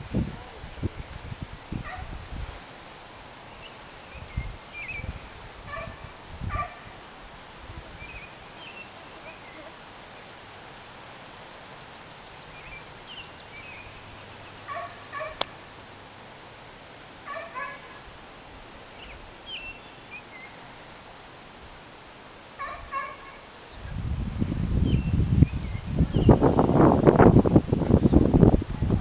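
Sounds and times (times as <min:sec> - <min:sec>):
wind buffeting microphone: 0:00.0 - 0:02.7, 0:04.1 - 0:08.3, 0:23.8 - 0:29.0
animal calls: 0:14.7 - 0:15.5, 0:17.3 - 0:18.1, 0:22.6 - 0:23.5.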